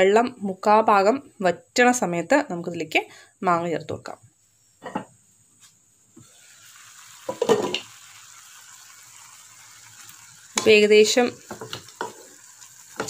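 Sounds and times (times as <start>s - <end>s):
pan simmering with bubbling hiss: 6.1s - 13.0s.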